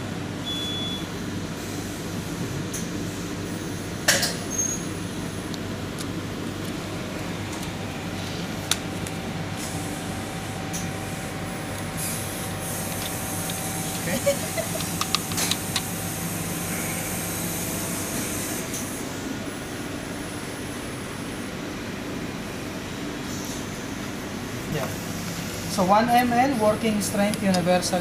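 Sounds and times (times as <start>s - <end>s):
room hum of lab equipment: 0.0s - 28.0s
plastic strips clicking into tray: 14.8s - 15.9s.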